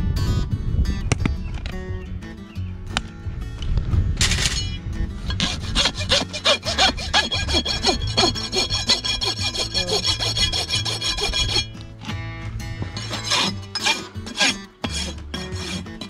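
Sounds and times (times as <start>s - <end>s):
background music: 0.1s - 16.0s
rasp filing a hoof: 5.3s - 11.9s, 12.8s - 16.0s.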